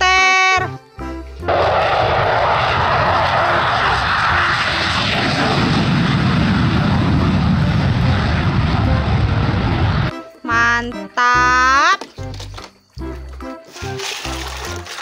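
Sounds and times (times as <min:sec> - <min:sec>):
jet roar: 0:01.5 - 0:10.1.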